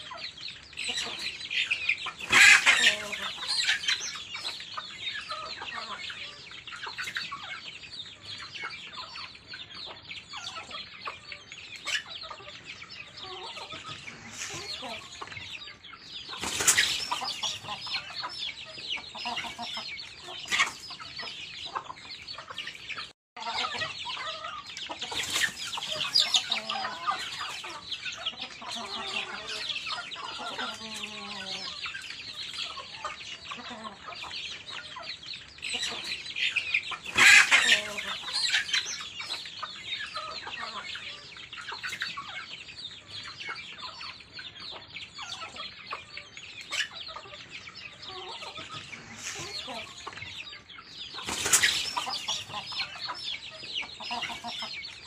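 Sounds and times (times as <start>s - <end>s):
chickens clucking and chirping: 0.0s - 55.0s.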